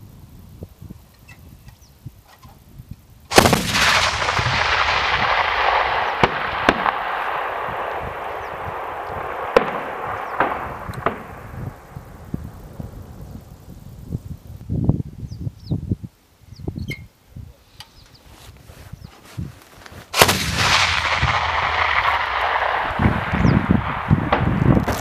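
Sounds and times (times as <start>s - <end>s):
rapid autocannon gunfire: 3.3s - 11.9s, 20.2s - 25.0s.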